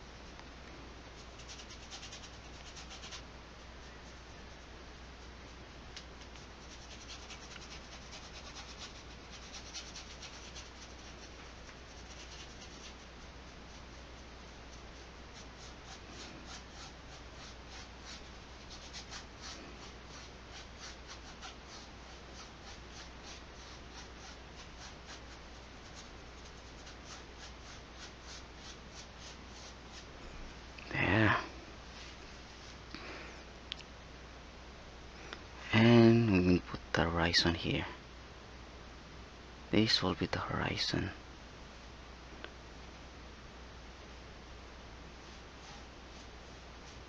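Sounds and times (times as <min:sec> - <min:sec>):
brush scrubbing paint on canvas: 0:01.2 - 0:05.6, 0:06.2 - 0:30.1, 0:45.2 - 0:47.0.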